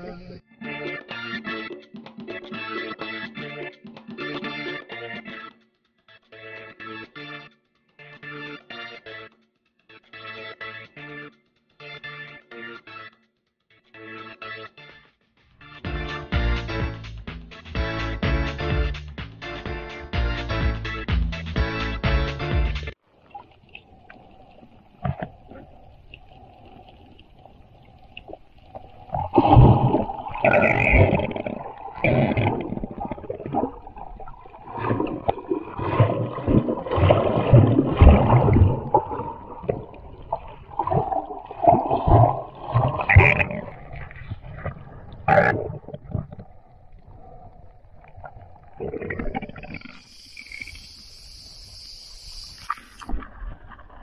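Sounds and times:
faint underwater clicks: 23.1s - 53.9s
water splashing hiss: 23.2s - 42.8s, 49.6s - 53.2s
underwater hiss: 49.6s - 53.2s.

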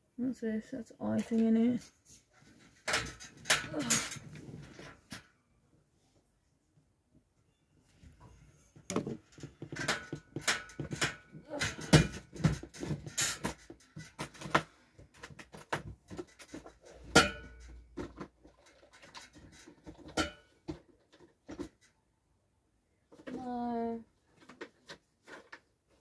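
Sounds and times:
clicks and knocks of items: 1.2s - 5.3s, 8.2s - 22.0s, 24.3s - 25.8s.

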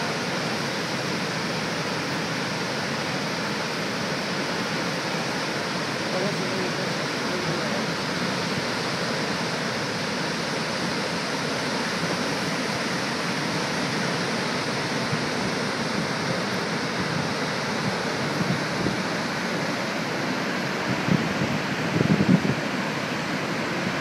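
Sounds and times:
waterfall rushing: 0.0s - 24.0s.

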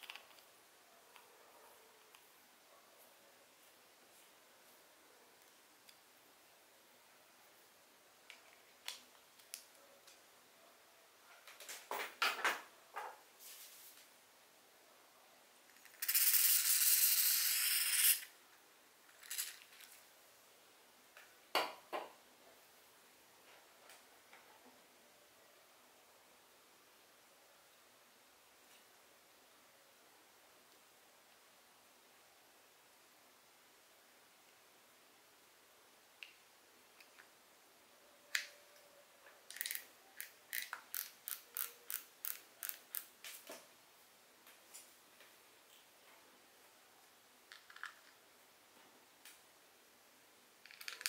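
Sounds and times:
fishing reel clicking: 16.0s - 18.2s.

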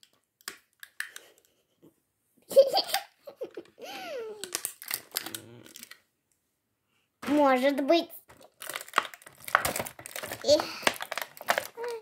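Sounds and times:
girl laughing: 2.5s - 4.5s
plastic packaging clicks: 4.4s - 6.0s, 8.3s - 12.0s.

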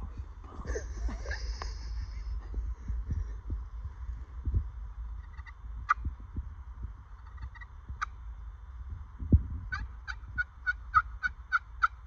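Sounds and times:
turkey yelping: 9.7s - 12.0s.

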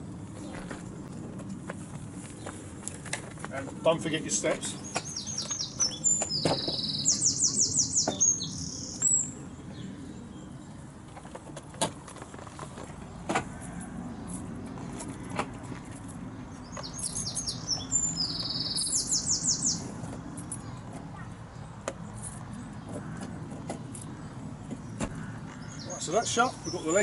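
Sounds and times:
distant traffic rumble: 0.0s - 27.0s
songbird singing high notes: 4.7s - 9.4s, 16.7s - 19.9s.

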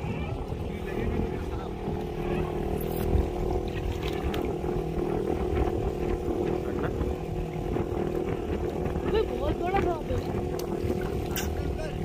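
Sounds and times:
boat engine running: 0.0s - 12.0s
faint clicks: 10.5s - 10.7s.

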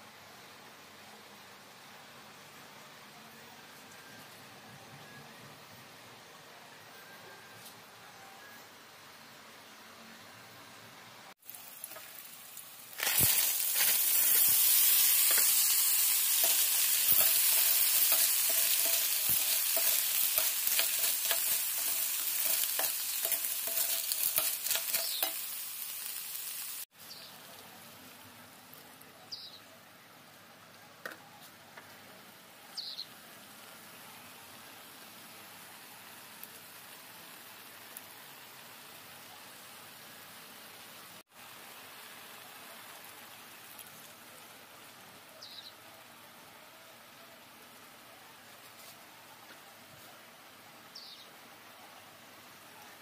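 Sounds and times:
snails sizzling in a hot pan: 11.3s - 27.9s, 32.8s - 46.3s.

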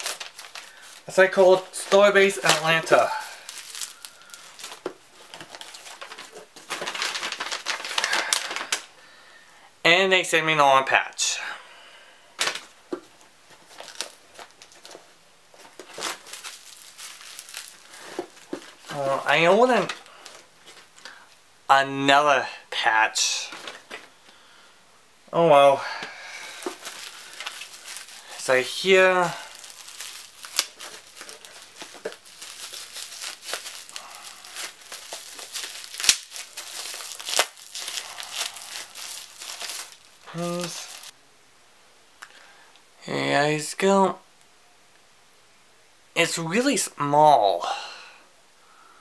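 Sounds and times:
paper and plastic crinkling: 0.0s - 8.9s, 12.4s - 21.2s, 23.4s - 24.2s, 26.0s - 41.1s.

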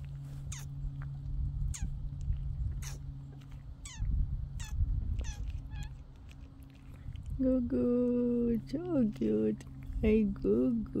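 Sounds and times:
rumble: 0.0s - 11.0s
steady low hum: 0.0s - 11.0s
woman speaking: 7.4s - 11.0s.

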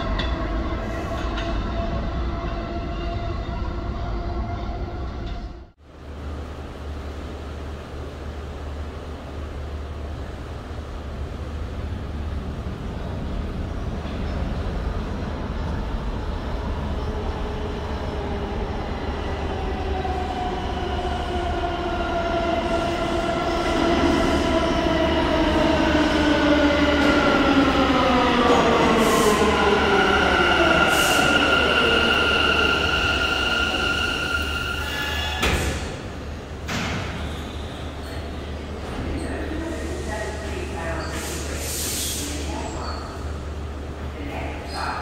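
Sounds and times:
high brake squeal: 30.9s - 35.8s.

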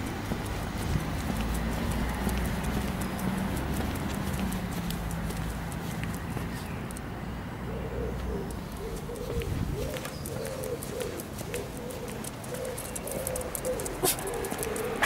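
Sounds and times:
dog whining: 12.7s - 14.5s.

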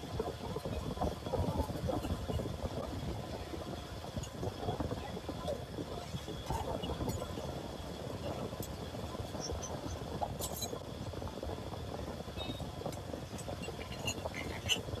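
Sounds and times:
low street rumble: 0.0s - 15.0s
ice and glass clinking: 13.6s - 14.8s.

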